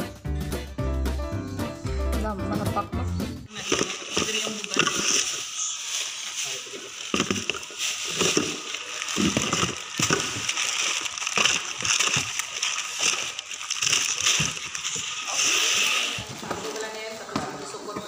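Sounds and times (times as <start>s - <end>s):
tin cans knocking: 3.5s - 5.7s, 6.5s - 17.0s
plastic pouches rustling: 3.5s - 17.3s.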